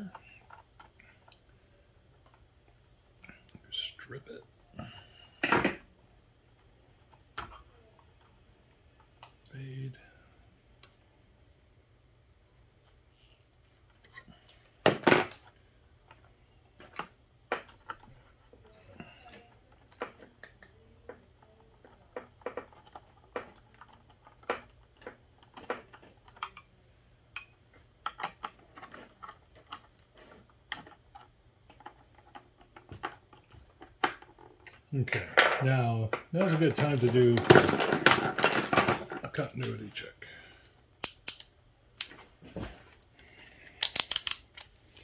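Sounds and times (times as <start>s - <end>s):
wires and terminals clicking: 41.0s - 42.2s, 43.8s - 44.9s.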